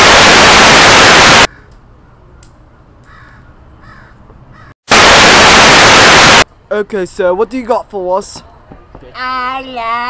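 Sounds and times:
static white-noise hiss: 0.0s - 1.5s, 4.9s - 6.4s.

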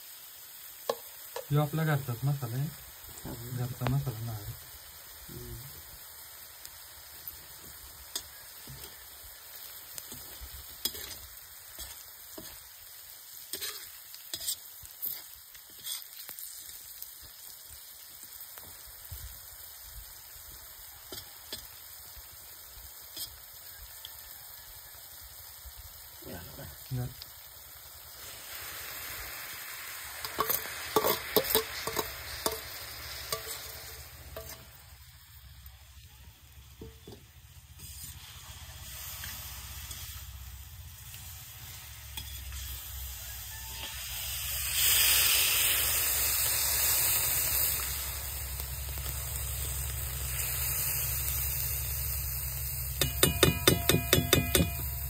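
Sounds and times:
food sizzling in a pan: 0.0s - 55.0s
utensil knocking against pan: 53.0s - 54.9s.

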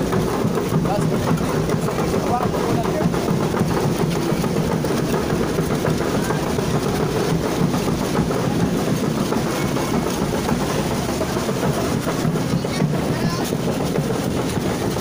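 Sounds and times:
dense clatter of street parade: 0.0s - 15.0s.

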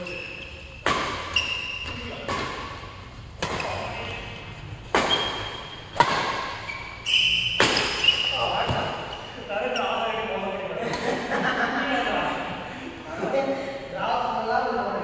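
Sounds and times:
shoe squeaks on court: 0.0s - 2.2s, 5.0s - 10.0s
racket hitting shuttlecock: 0.4s - 4.2s, 4.8s - 9.0s.

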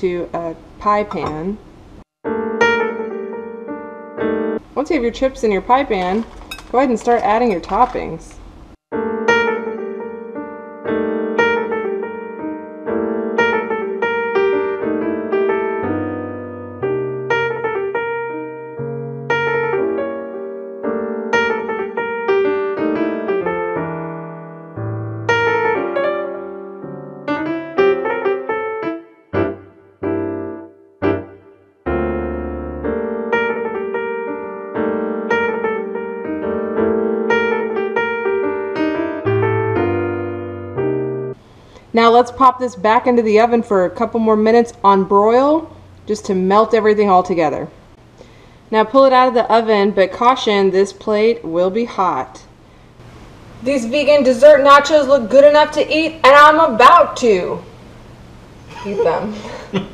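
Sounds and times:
electric piano music: 2.2s - 8.1s, 8.9s - 41.4s.

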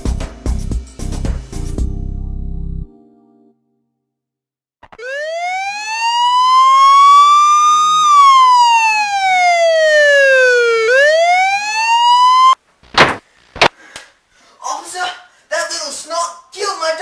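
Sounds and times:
police siren wailing: 5.0s - 12.6s.

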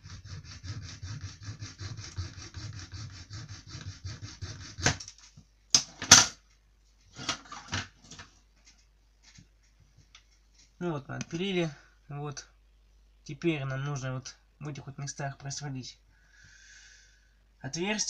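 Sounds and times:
hacksaw cutting plastic: 0.0s - 5.2s.

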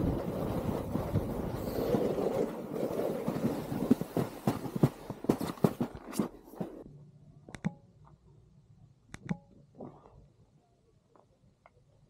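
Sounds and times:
snowboard scraping over snow: 0.0s - 6.8s.

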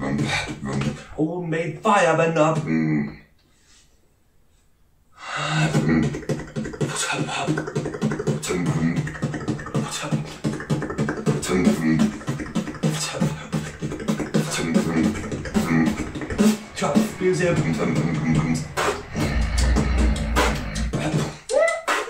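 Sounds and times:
beatboxing mouth clicks: 5.6s - 22.0s
hummed bass line: 10.4s - 21.2s.

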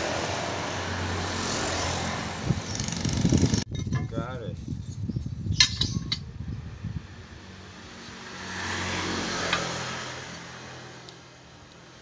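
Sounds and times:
vehicle passing by: 0.0s - 3.4s, 6.8s - 11.1s.

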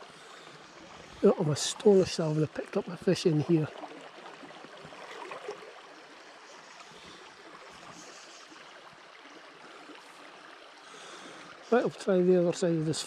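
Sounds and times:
stream babbling over bed: 0.0s - 13.0s.

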